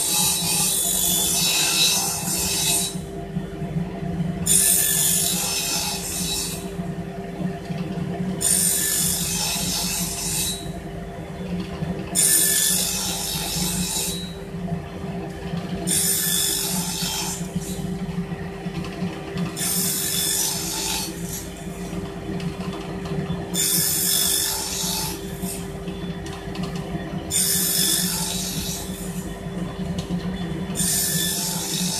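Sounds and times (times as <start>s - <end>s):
saw blade cutting wood: 0.0s - 3.0s, 4.5s - 6.6s, 8.4s - 10.7s, 12.2s - 14.4s, 15.9s - 17.8s, 19.6s - 21.5s, 23.6s - 25.6s, 27.3s - 29.0s, 30.8s - 31.9s
table saw motor hum: 0.0s - 31.9s.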